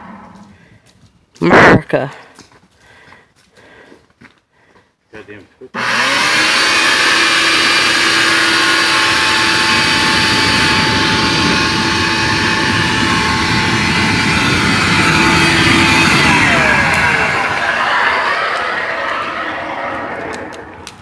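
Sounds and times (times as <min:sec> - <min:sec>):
leaf blower running: 0:05.8 - 0:21.0.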